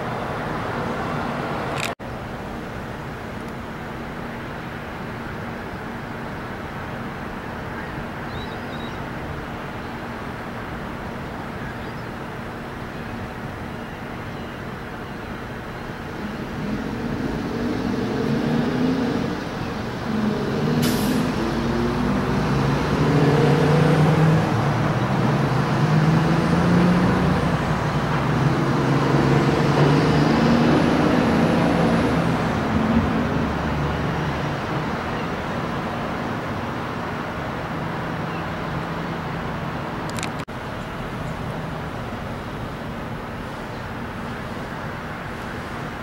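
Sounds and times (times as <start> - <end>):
passing vehicle engine rumbling: 14.7 - 46.0
brief sharp hiss: 20.8 - 21.4.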